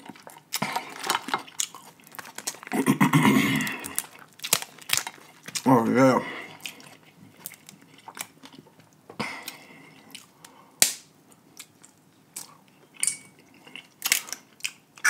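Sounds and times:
crab shells cracking: 0.0 - 2.8, 3.7 - 5.8, 13.8 - 14.8
wet chewing: 0.0 - 10.6.

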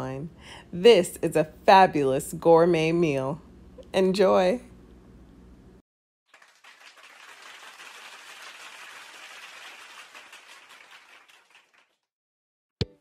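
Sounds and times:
applause: 6.3 - 12.1.

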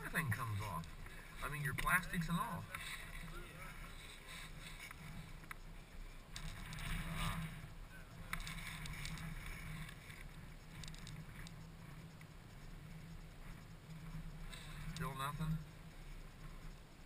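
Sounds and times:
clicks and rattles of wiring: 8.3 - 11.6.

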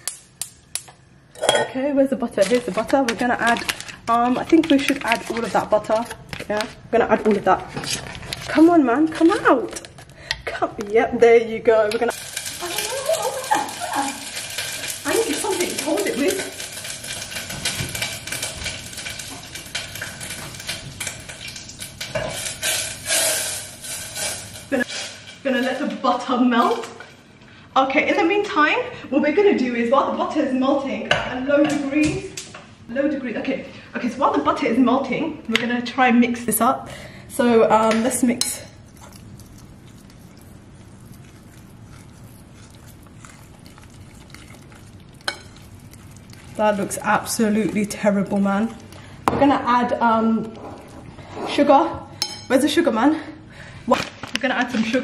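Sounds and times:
hissing rush from pan: 12.1 - 20.5, 21.1 - 25.3
fork stirring batter: 38.0 - 49.1.

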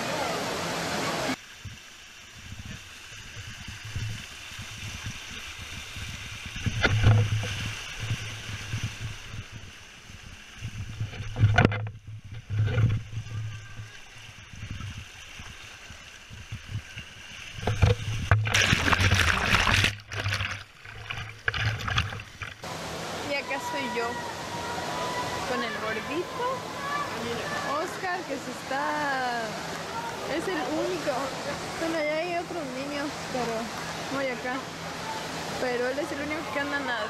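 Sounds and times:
water rushing down a slide: 0.0 - 37.0
camera plunging into water: 17.5 - 22.6.

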